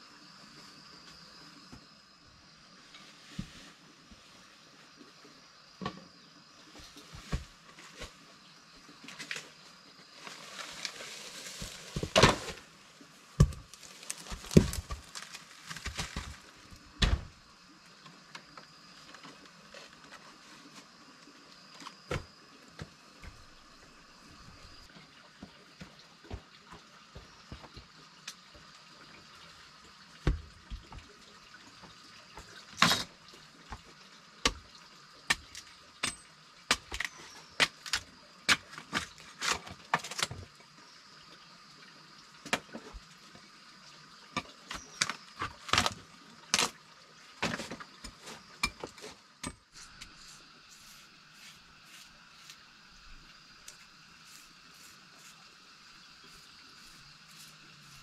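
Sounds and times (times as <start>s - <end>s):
faint steady hiss: 0.0s - 26.0s, 40.2s - 58.0s.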